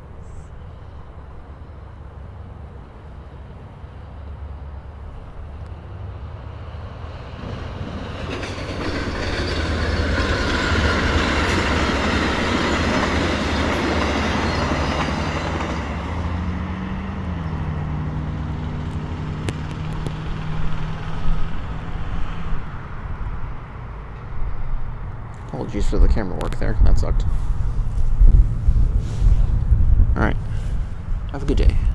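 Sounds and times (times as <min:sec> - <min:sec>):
low locomotive hum: 0:00.0 - 0:31.9
train wheels clacking on rails: 0:07.4 - 0:16.5.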